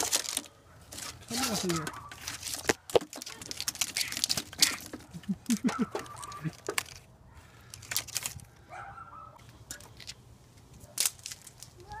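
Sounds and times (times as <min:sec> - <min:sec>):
wiring harness rustling and crinkling: 0:00.0 - 0:12.0.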